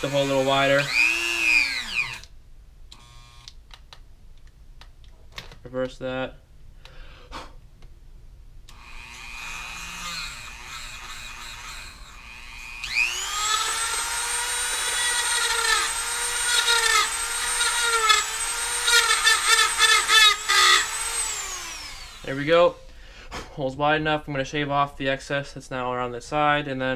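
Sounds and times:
rotary tool grinding plastic: 0.0s - 2.3s, 8.7s - 22.4s.

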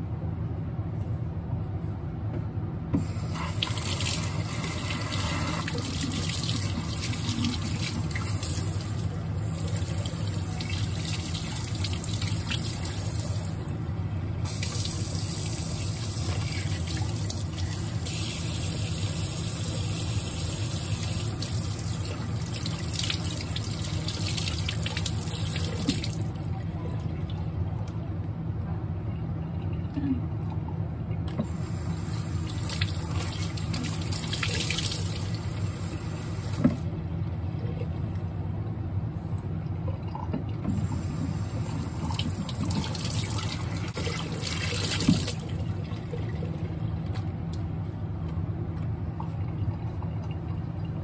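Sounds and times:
tap water running and splashing: 3.0s - 13.7s, 14.4s - 26.4s, 31.4s - 36.8s, 40.3s - 46.6s.

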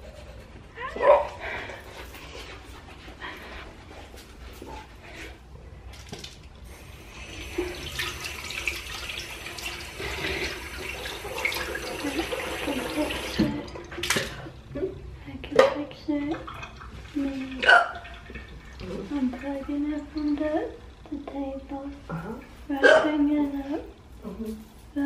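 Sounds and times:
water running from a sink tap: 6.6s - 14.1s.

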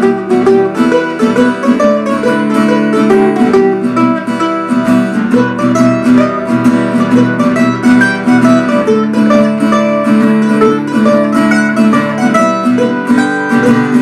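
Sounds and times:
acoustic guitar strumming: 0.0s - 14.0s
plucked string instrument picking: 0.0s - 14.0s.

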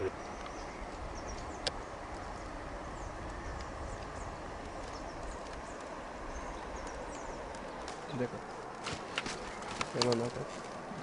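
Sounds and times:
faint bird chirps: 0.0s - 8.6s
river water flowing: 0.2s - 9.8s.

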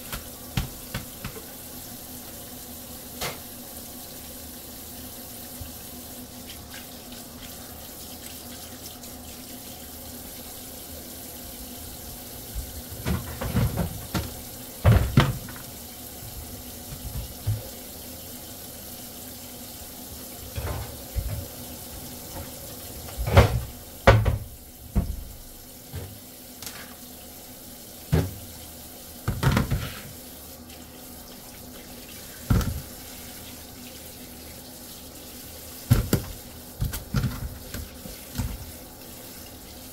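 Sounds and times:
tap running into sink: 0.0s - 1.5s, 12.5s - 17.8s, 20.4s - 27.0s, 28.1s - 28.5s, 29.2s - 30.2s, 32.5s - 33.0s, 35.9s - 38.8s
fish knocking and thumping: 13.0s - 15.6s, 35.9s - 37.8s.

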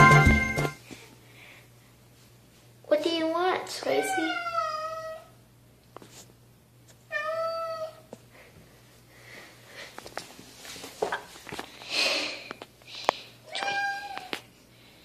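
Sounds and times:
cat meowing: 3.9s - 5.4s, 7.1s - 8.0s, 13.5s - 14.4s
rustling noise: 5.9s - 7.0s, 9.8s - 11.9s.

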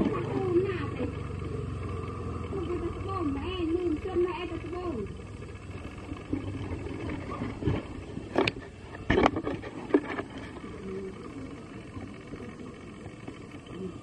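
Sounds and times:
microphone handling rumble: 5.6s - 12.5s.

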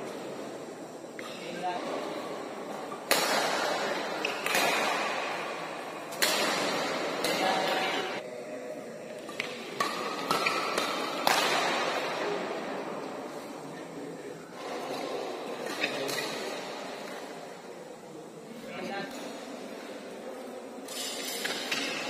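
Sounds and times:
rackets striking shuttlecock: 2.9s - 8.2s, 9.2s - 12.3s.

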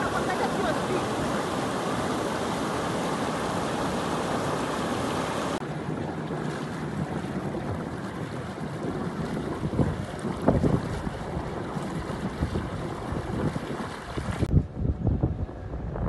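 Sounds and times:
floodwater rushing over rocks: 0.0s - 14.5s
water swirling in whirlpool: 0.0s - 14.5s.

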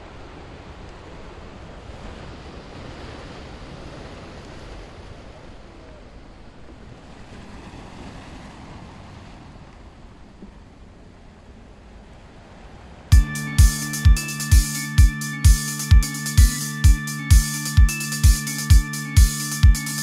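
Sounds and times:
waves washing on beach: 0.0s - 10.2s.

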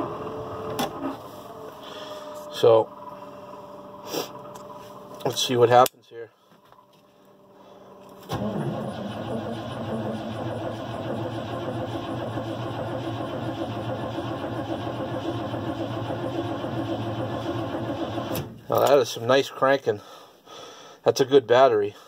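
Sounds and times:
engine cranking by starter: 8.1s - 18.6s.

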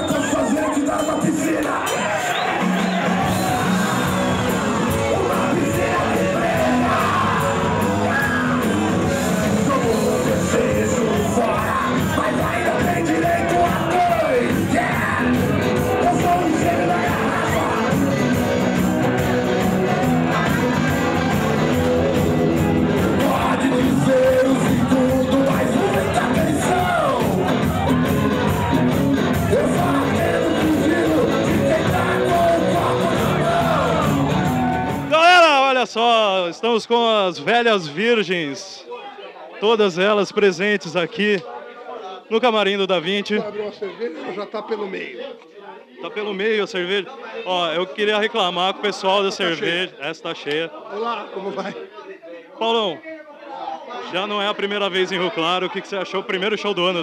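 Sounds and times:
person singing: 0.0s - 35.1s
live rock band: 0.0s - 35.2s.

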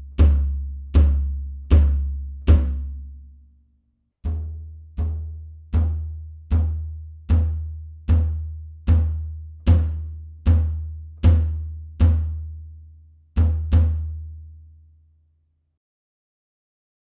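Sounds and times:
bass drum kicks: 0.0s - 3.1s, 4.3s - 12.5s.

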